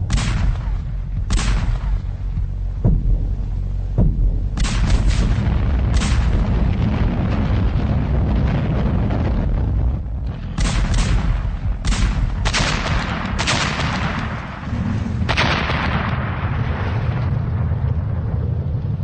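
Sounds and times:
heavy gunfire: 0:00.0 - 0:02.1, 0:04.6 - 0:09.4, 0:10.3 - 0:16.9
continuous low rumble: 0:00.0 - 0:19.0
explosions with rumbling tails: 0:00.0 - 0:19.0.

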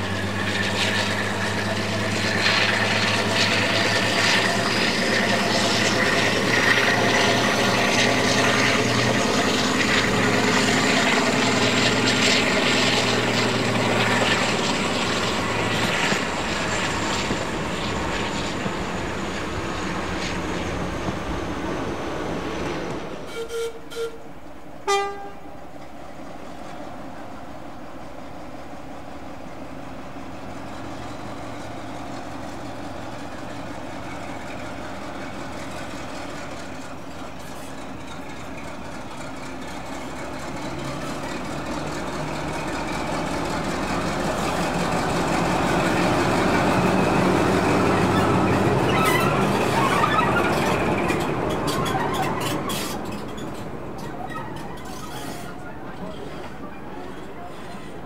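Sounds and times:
train engine and running noise: 0:00.0 - 0:58.0
diesel locomotive horn toots: 0:23.2 - 0:25.6, 0:48.1 - 0:50.6.

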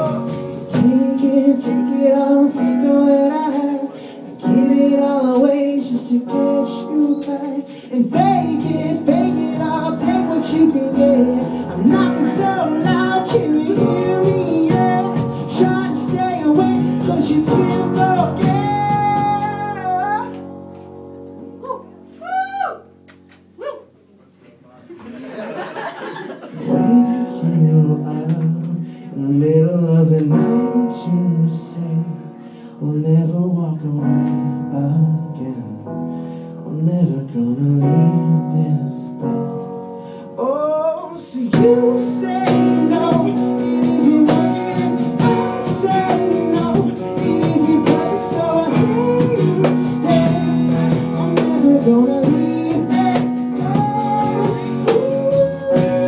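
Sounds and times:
live band playing pop music: 0:00.0 - 0:20.4, 0:41.2 - 0:56.0
keyboard chords: 0:37.6 - 0:56.0
strummed percussive playing: 0:41.6 - 0:56.0.

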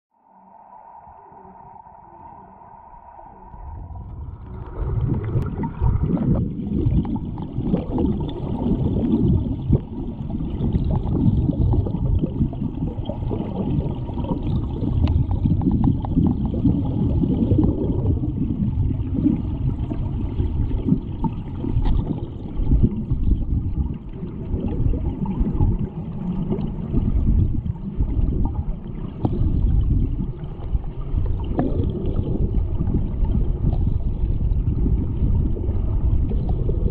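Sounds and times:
steady tone: 0:00.1 - 0:07.7
underwater rumble and gurgling: 0:00.2 - 0:36.9.

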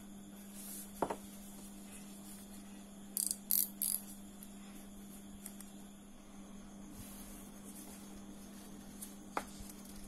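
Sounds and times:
high rasping clicks: 0:03.2 - 0:04.1.

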